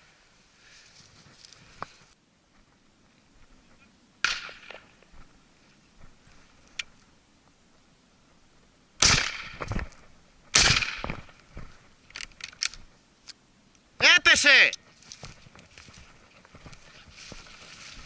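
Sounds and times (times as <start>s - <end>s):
shotgun shots with ringing tail: 9.0s - 9.7s, 10.5s - 11.3s.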